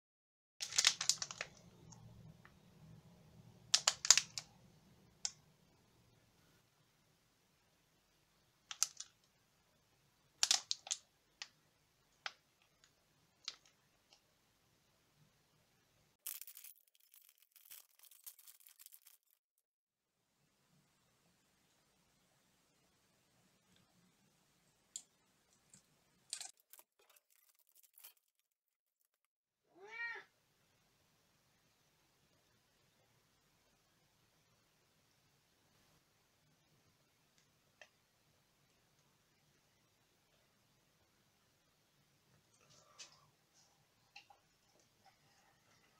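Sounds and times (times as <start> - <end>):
plastic snack wrapper crinkling: 0.6 - 2.0, 3.7 - 4.5, 8.7 - 9.2, 10.4 - 11.0, 16.2 - 19.4, 26.3 - 29.1
cat meowing: 29.7 - 30.3.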